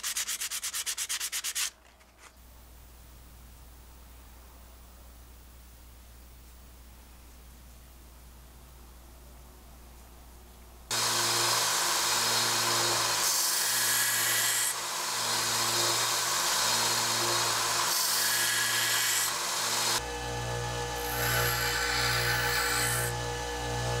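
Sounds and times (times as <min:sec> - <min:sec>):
belt sander running: 0:10.9 - 0:24.0
bench grinder running: 0:10.9 - 0:24.0
metal grinding on sander belt: 0:10.9 - 0:24.0.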